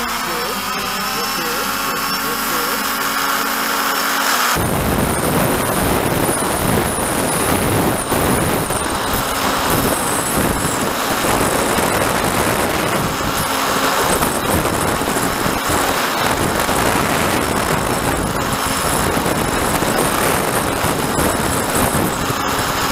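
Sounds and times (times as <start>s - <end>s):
model aircraft propeller whine: 0.0s - 22.9s
wind noise on microphone: 3.2s - 22.9s.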